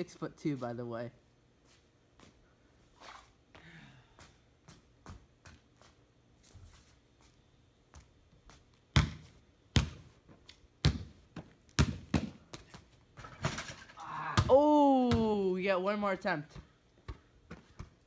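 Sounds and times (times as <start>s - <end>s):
basketball bouncing on pavement: 4.6s - 6.0s, 7.9s - 13.6s, 14.4s - 15.5s, 16.5s - 18.0s.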